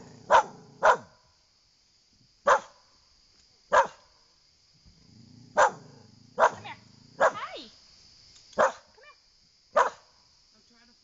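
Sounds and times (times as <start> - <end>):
dog barking: 0.3 - 1.2, 2.4 - 2.8, 3.7 - 4.1, 5.5 - 7.5, 8.6 - 8.9, 9.7 - 10.1.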